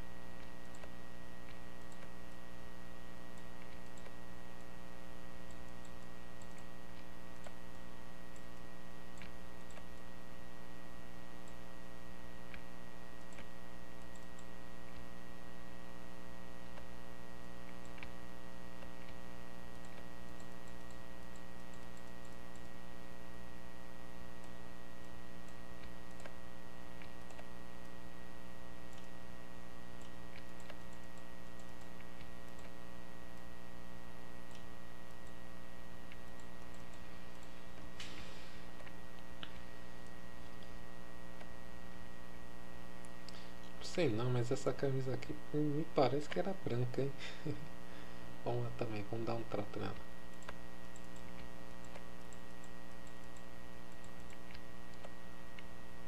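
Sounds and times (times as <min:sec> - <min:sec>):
electrical hum: 0:00.0 - 0:56.0
computer mouse clicking: 0:00.4 - 0:02.3, 0:03.4 - 0:04.7, 0:05.4 - 0:10.1, 0:12.5 - 0:15.1, 0:17.6 - 0:18.2, 0:18.8 - 0:19.2, 0:19.8 - 0:22.8, 0:24.4 - 0:26.4, 0:27.0 - 0:28.0, 0:28.9 - 0:29.2, 0:30.0 - 0:32.8, 0:34.4 - 0:35.4, 0:36.0 - 0:41.5, 0:49.2 - 0:55.7.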